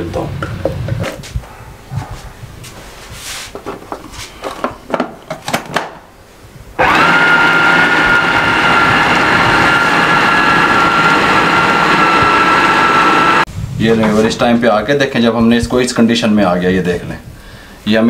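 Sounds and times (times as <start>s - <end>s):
food processor motor whining: 6.8s - 13.5s.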